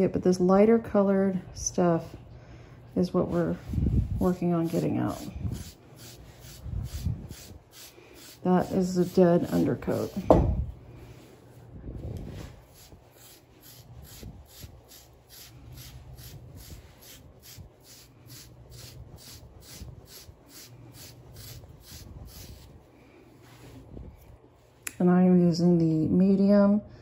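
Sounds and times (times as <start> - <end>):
low thud: 10.2 - 10.7.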